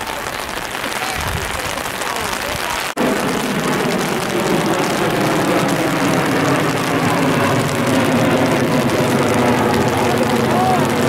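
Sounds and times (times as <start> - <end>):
engine drone: 3.0 - 11.0.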